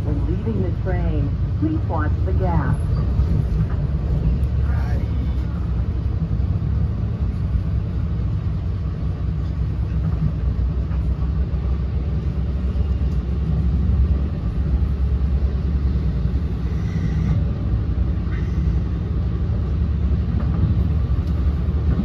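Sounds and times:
train wheels rumbling on rails: 0:00.0 - 0:22.0.

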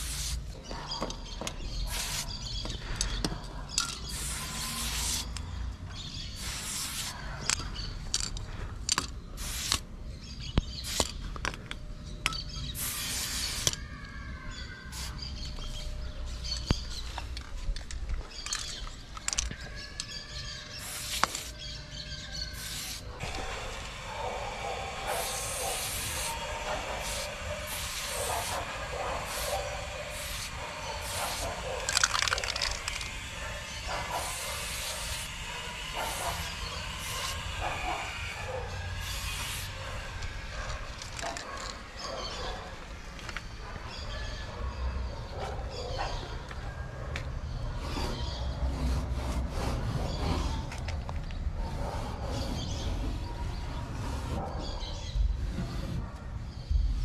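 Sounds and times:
spray bottle hisses: 0:00.0 - 0:00.5, 0:01.8 - 0:02.5, 0:04.0 - 0:05.4, 0:06.2 - 0:07.2, 0:09.4 - 0:09.8, 0:12.8 - 0:13.8, 0:14.9 - 0:15.4, 0:20.8 - 0:21.6, 0:22.5 - 0:23.8, 0:24.8 - 0:39.8.

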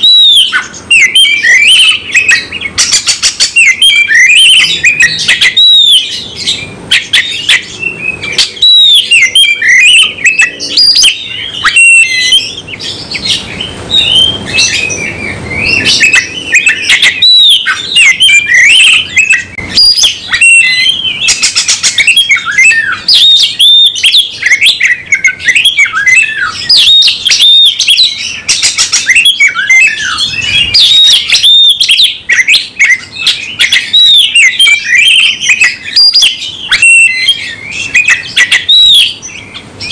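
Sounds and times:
bird singing whistles: 0:00.0 - 0:39.9.

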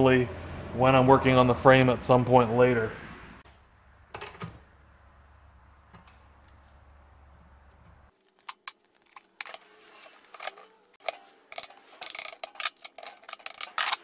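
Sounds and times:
hand tools clicking on metal: 0:10.2 - 0:14.0.

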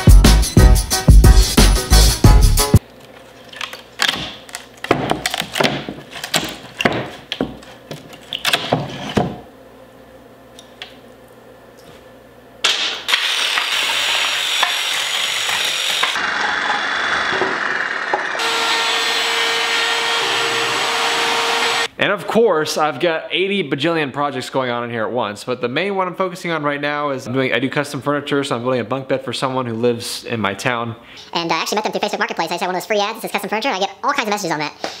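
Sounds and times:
plywood panels knocking and clattering: 0:04.0 - 0:09.4
jigsaw cutting plywood: 0:13.1 - 0:21.9
router whining: 0:13.1 - 0:21.9.

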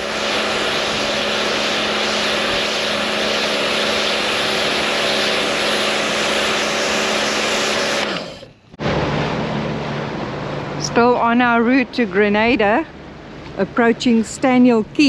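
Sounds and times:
water jet hissing: 0:00.0 - 0:08.5
pressure washer motor hum: 0:00.0 - 0:13.6.

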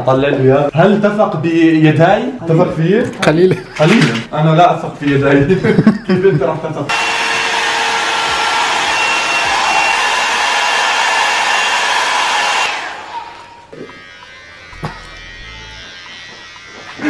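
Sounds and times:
hair dryer blowing: 0:06.9 - 0:13.1.

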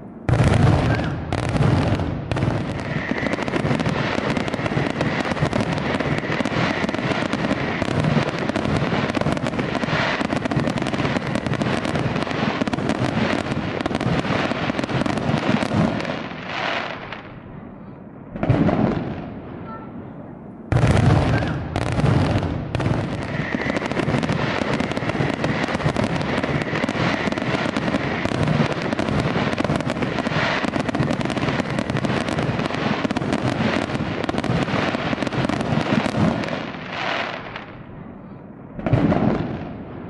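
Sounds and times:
firework shells bursting: 0:20.7 - 0:37.1.

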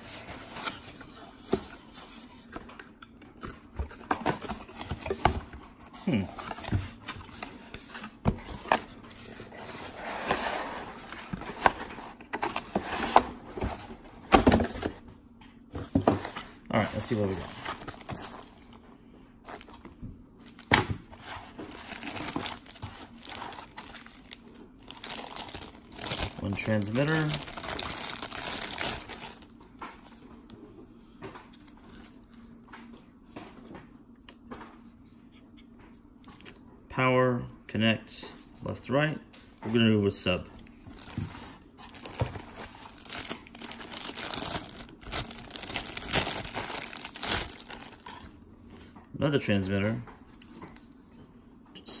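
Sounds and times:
cardboard rustling: 0:03.4 - 0:15.0, 0:15.7 - 0:18.8, 0:19.4 - 0:30.2, 0:40.9 - 0:48.2.

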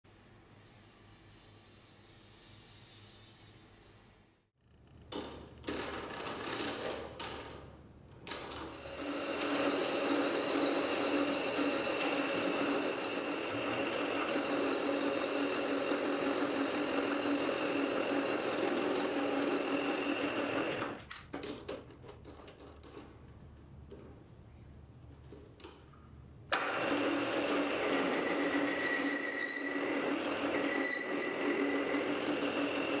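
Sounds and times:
metal lathe running with whine: 0:08.8 - 0:20.8, 0:26.6 - 0:33.0.

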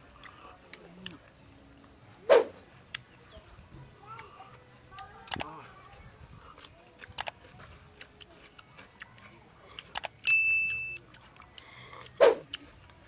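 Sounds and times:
shells and toothpicks clicking: 0:06.5 - 0:07.4, 0:09.7 - 0:12.6.

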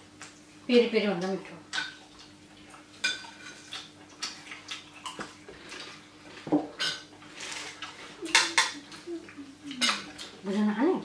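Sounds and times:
cutlery clinking on plates: 0:06.5 - 0:08.8, 0:09.8 - 0:10.3.

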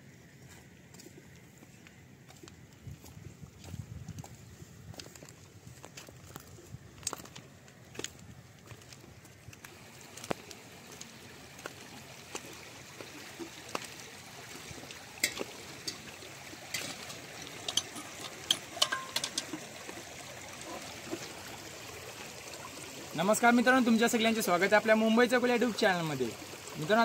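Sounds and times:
seawater trickling among rocks: 0:00.1 - 0:27.0
small clicks and knocks: 0:16.7 - 0:19.6.

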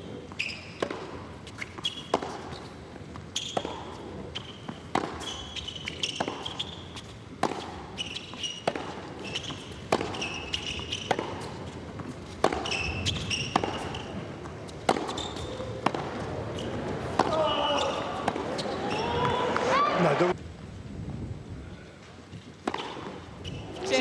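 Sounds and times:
shoe squeaks on court: 0:00.0 - 0:07.1, 0:07.9 - 0:11.8, 0:12.4 - 0:15.7, 0:16.5 - 0:19.4, 0:22.7 - 0:24.0
racquet hitting tennis ball: 0:00.4 - 0:19.8, 0:22.6 - 0:23.8.

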